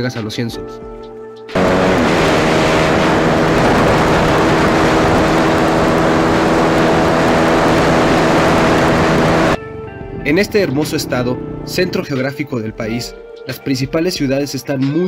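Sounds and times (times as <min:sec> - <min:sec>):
motorcycle engine cruising: 0:01.5 - 0:12.1
wind rush over microphone: 0:01.6 - 0:09.6.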